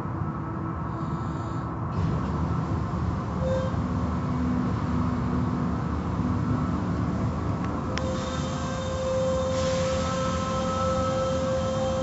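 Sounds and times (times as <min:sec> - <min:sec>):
car wash motors rumbling: 0:02.0 - 0:12.0
water spray: 0:08.1 - 0:11.2.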